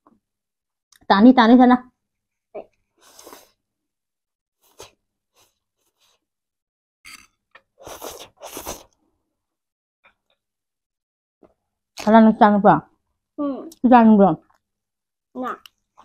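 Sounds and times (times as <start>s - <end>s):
noodles being slurped: 7.8s - 9.0s.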